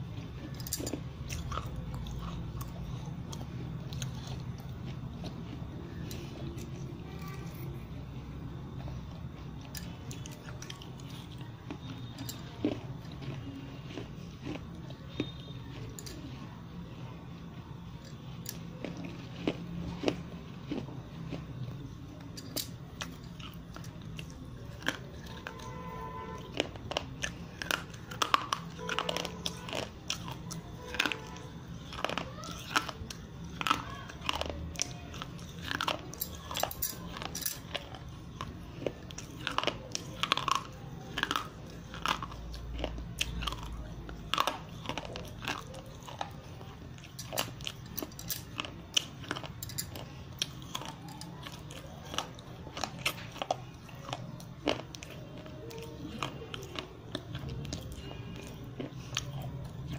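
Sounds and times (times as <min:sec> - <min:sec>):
crunching and snapping bites: 0:08.6 - 0:16.3.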